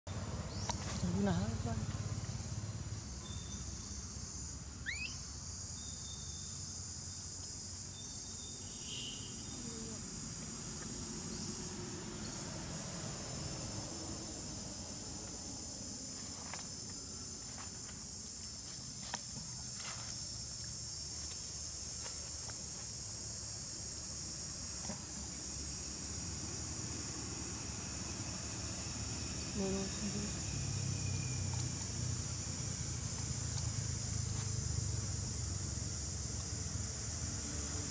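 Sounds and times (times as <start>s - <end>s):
insect chorus buzzing: 0.1s - 37.9s
short rising squeak: 4.9s - 5.2s.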